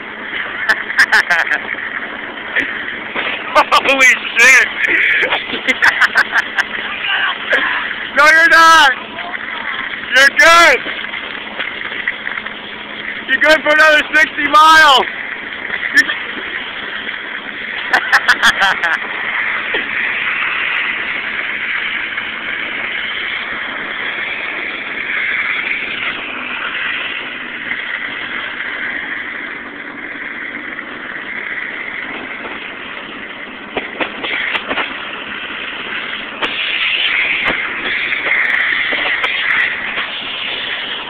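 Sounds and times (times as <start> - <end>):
rushing air: 0.0 - 41.0
tyres on gravel: 0.0 - 41.0.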